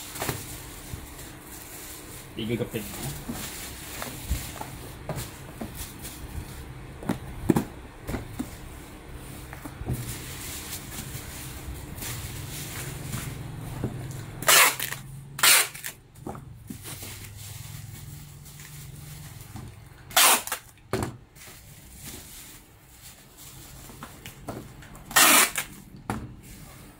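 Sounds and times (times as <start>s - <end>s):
bubble wrap crinkling: 0.0s - 16.0s, 16.6s - 25.8s.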